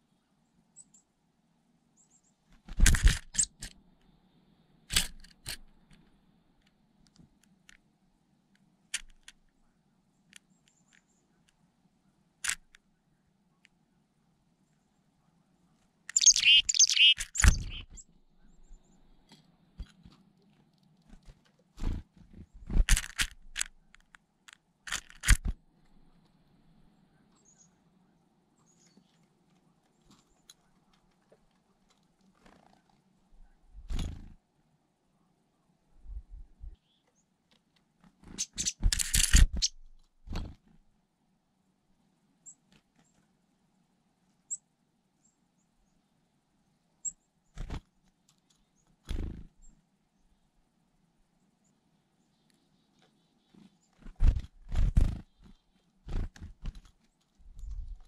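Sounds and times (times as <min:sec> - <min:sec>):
bird picking through seeds: 0:16.1 - 0:17.8, 0:22.7 - 0:24.2, 0:24.9 - 0:26.1, 0:38.2 - 0:40.5.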